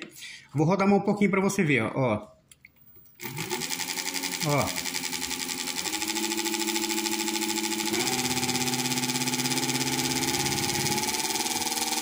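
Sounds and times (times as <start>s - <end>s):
electric motor hum and whine: 3.2s - 12.0s.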